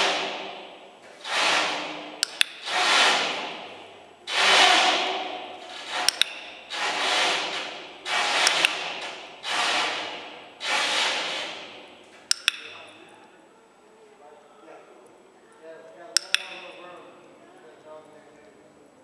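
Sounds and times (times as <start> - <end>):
clicker clicking: 6.0 - 6.4, 12.3 - 12.8, 16.2 - 16.7.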